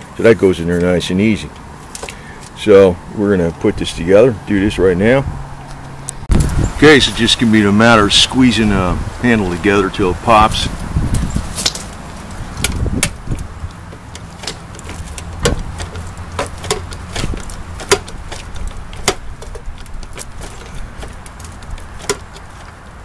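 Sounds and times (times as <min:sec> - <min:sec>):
wind rumble on microphone: 0:03.6 - 0:13.9, 0:14.8 - 0:16.4, 0:17.0 - 0:22.7.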